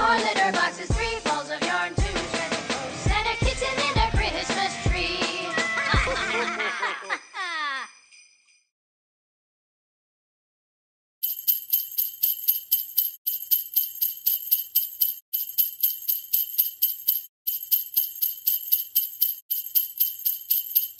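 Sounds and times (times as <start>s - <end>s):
jingle bells shaken: 7.9s - 8.6s, 11.2s - 20.9s.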